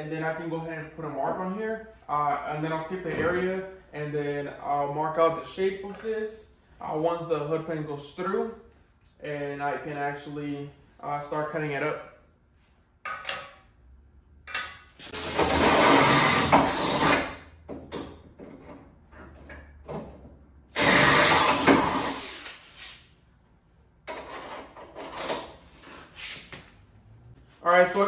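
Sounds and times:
drill boring through metal: 15.1 - 17.4, 20.8 - 22.6.

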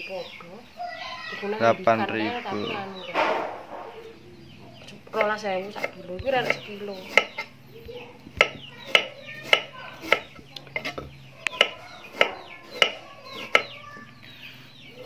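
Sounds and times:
knife chopping on wooden board: 5.1 - 13.8.

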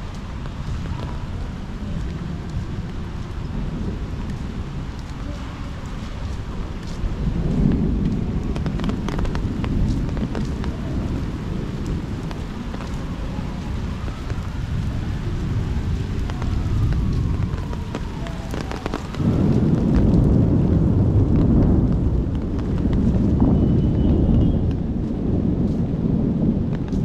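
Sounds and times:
rain falling: 0.0 - 27.0
raindrops tapping: 0.0 - 27.0
thunder rumbling: 0.0 - 27.0.

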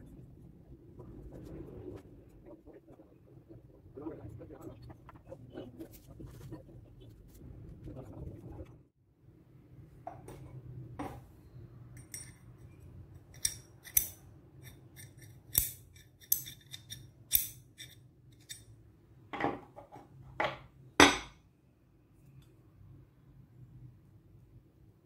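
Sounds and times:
metal wrench clicks and clinks: 13.3 - 18.7.

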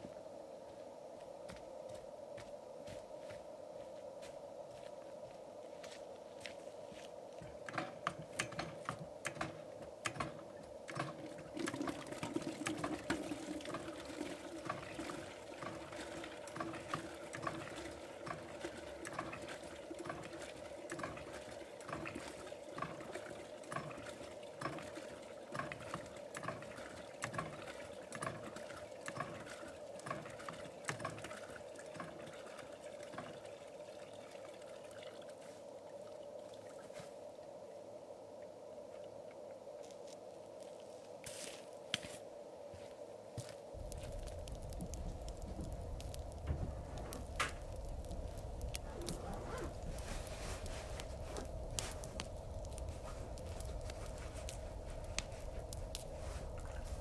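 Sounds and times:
hand water pump clanking: 7.7 - 33.5
water splashing from spout: 10.9 - 35.4.

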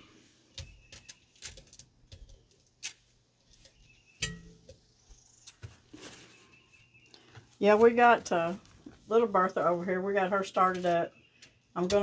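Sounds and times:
light taps and foil crinkles: 0.5 - 9.0.

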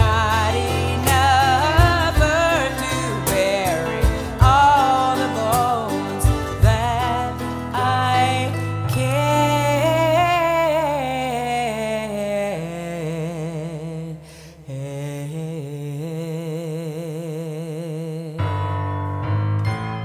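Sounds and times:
live band playing slow instrumental: 0.0 - 10.4
plucked string notes: 0.0 - 11.6.

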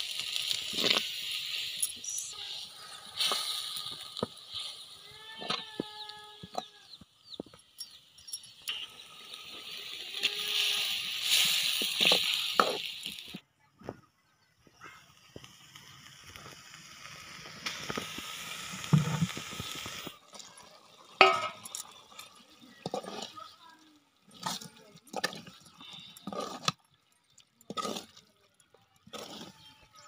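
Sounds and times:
gravy sizzling in a metal pan: 0.0 - 6.6, 7.2 - 13.4, 15.5 - 25.8
ladle clinking against pan: 21.2 - 21.7
steel ladle scraping pan: 21.2 - 23.4.

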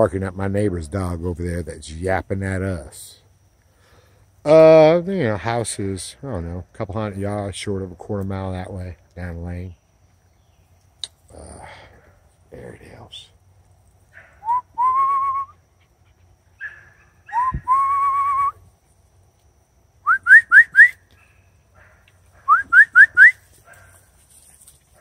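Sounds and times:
person whistling: 14.4 - 15.6, 17.3 - 18.6, 20.1 - 21.0, 22.5 - 23.4.

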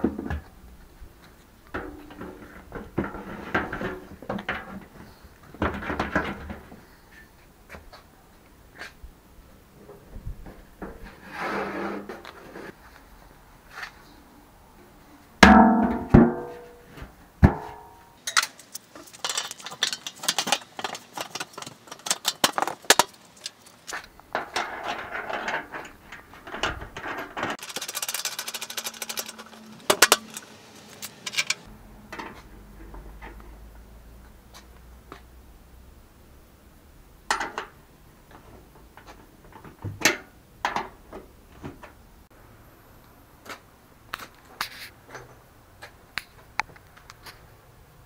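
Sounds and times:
metallic clang of steel drum: 15.4 - 18.5
metal rattling and clinking: 17.5 - 31.7.

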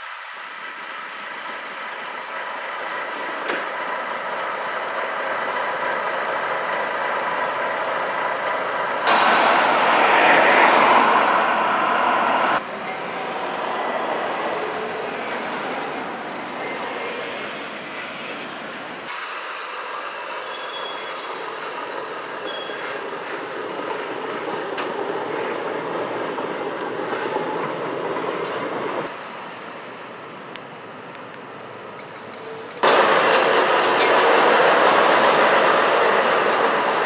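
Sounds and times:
truck diesel engine running: 0.2 - 18.9
passing cars: 8.1 - 19.1.

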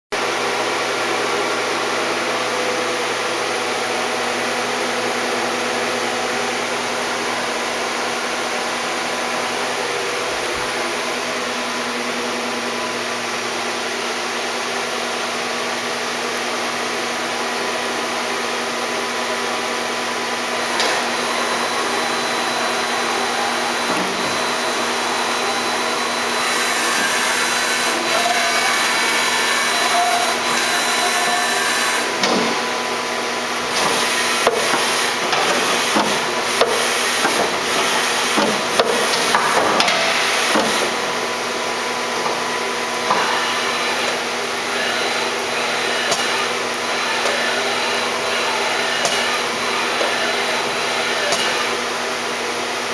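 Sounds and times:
machinery drone: 19.4 - 36.5.

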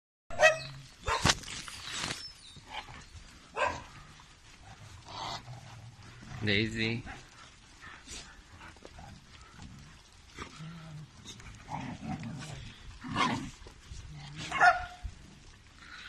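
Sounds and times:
dogs barking: 0.3 - 1.3, 3.5 - 4.0, 14.4 - 15.0.

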